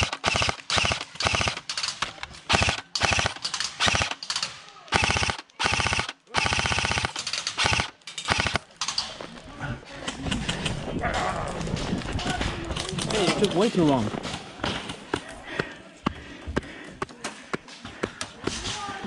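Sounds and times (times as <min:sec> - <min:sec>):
airsoft rifle bursts: 0:00.0 - 0:09.0.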